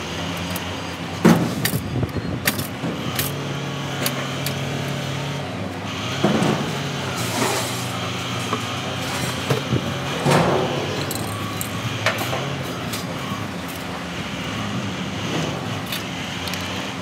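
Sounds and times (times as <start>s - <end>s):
engine hum: 0.0s - 17.0s
sheet metal clanking and scraping: 6.2s - 11.2s.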